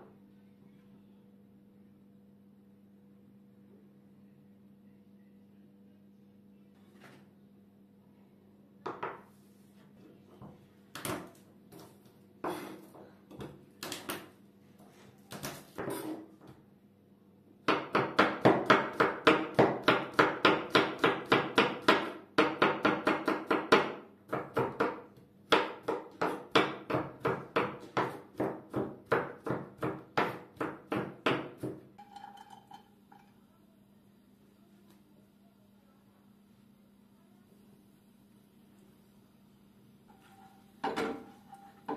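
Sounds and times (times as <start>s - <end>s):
knife chopping on wooden board: 17.7s - 31.8s.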